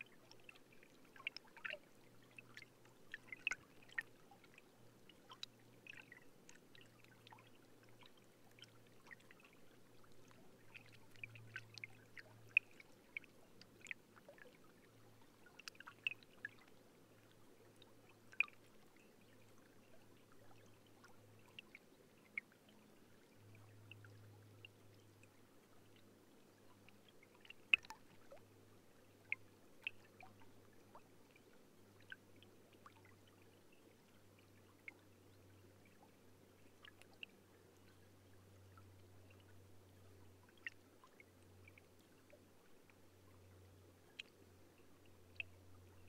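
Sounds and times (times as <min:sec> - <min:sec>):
water dripping: 0:27.4 - 0:28.3.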